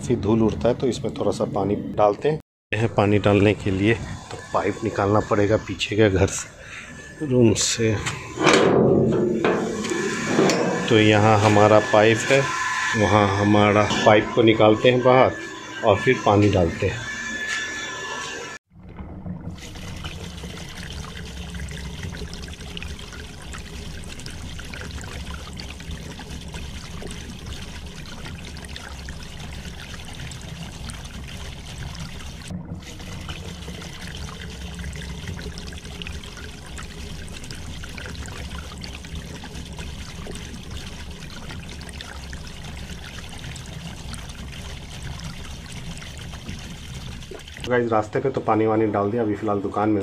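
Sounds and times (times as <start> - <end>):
water splashing from hose: 9.4 - 17.6, 19.4 - 48.6.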